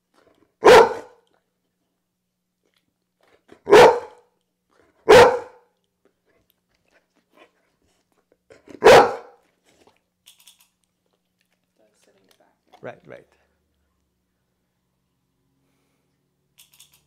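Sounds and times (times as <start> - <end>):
dog barking: 0.6 - 1.2, 3.6 - 4.3, 5.0 - 5.7, 8.7 - 9.4.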